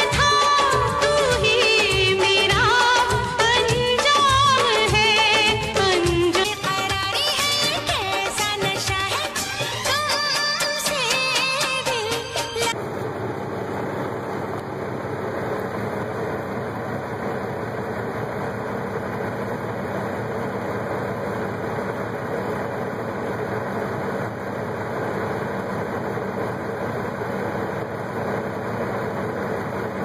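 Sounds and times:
heavy truck engine running: 0:00.0 - 0:30.0.

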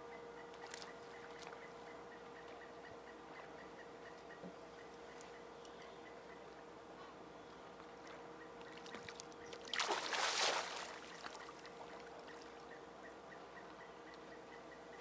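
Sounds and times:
fish splashing at water surface: 0:09.7 - 0:11.1.

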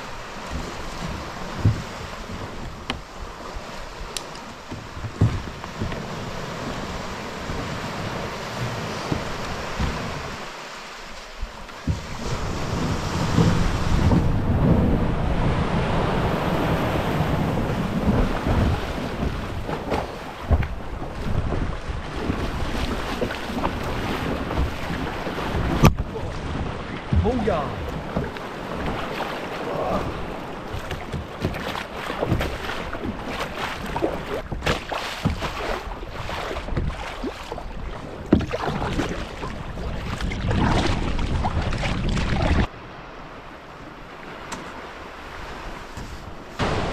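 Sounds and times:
paddle splashing in water: 0:00.0 - 0:42.8, 0:43.9 - 0:46.9
sea waves breaking: 0:00.0 - 0:46.9
wind on microphone: 0:11.4 - 0:42.7
water gurgling against hull: 0:11.8 - 0:42.7.

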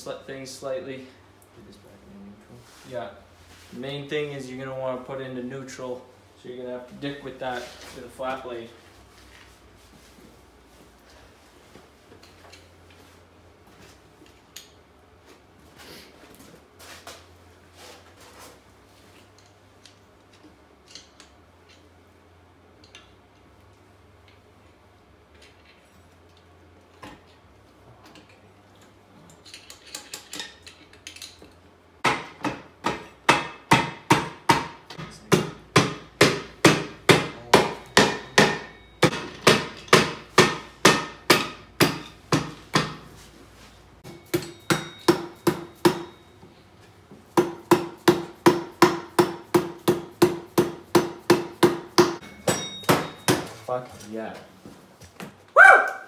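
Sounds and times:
hammer pounding on metal case: 0:32.0 - 0:43.0.

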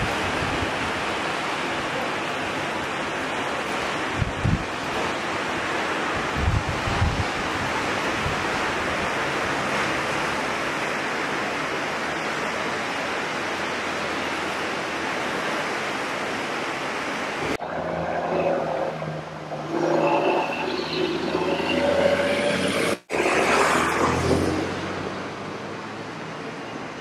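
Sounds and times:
wind noise on microphone: 0:00.0 - 0:01.2, 0:04.0 - 0:05.2, 0:06.1 - 0:09.2
flooded river rushing: 0:00.0 - 0:27.0.

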